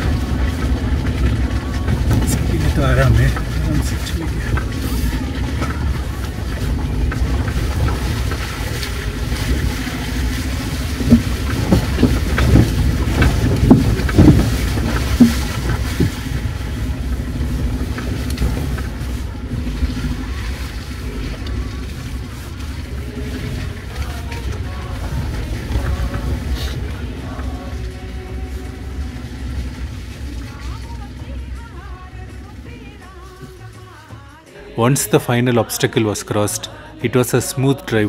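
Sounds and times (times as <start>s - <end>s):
sharp knocks and thuds: 0.0s - 20.5s
vehicle engine low drone: 0.0s - 38.0s.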